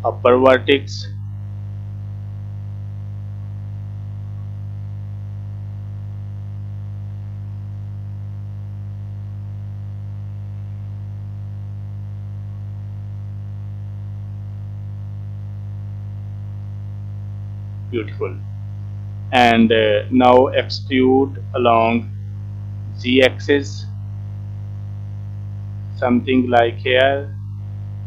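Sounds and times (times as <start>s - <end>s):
electrical mains hum: 0.0s - 28.0s.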